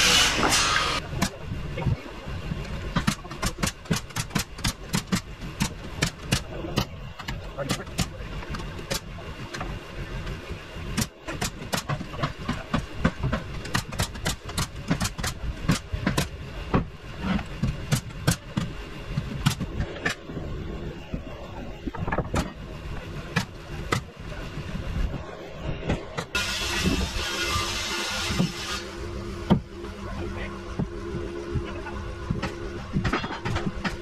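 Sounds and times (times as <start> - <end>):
low engine rumble: 0.0 - 27.3, 28.2 - 34.0
hammering nails into wood: 3.0 - 6.9, 11.0 - 16.3.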